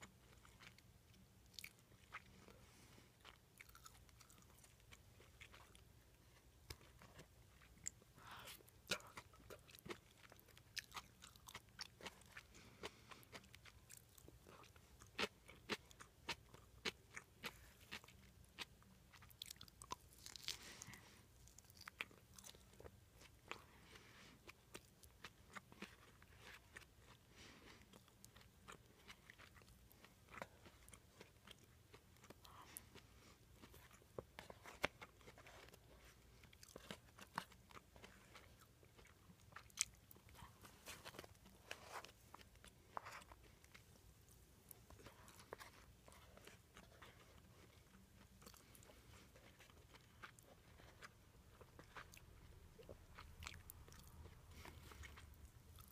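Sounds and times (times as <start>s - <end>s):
person chewing food: 0.0s - 55.9s
crunch of food: 0.2s - 2.6s, 3.2s - 5.8s, 6.6s - 33.0s, 44.7s - 55.9s.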